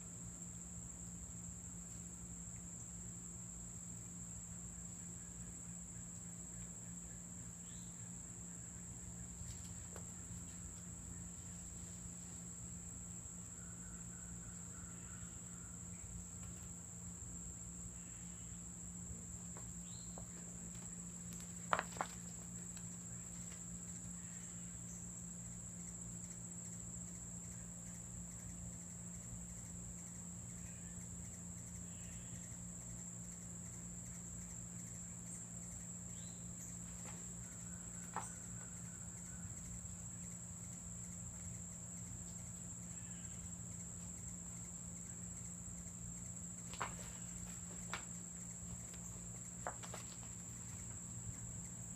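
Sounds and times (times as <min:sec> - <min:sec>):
high-pitched insect drone: 0:23.1 - 0:51.9.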